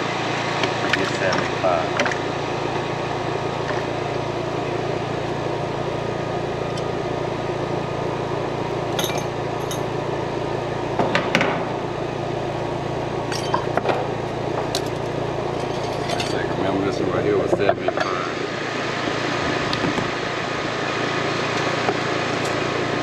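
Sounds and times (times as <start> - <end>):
steady machine hum: 0.0 - 23.0
hand tools clicking and clinking: 9.0 - 9.9, 13.3 - 13.9, 14.7 - 16.5.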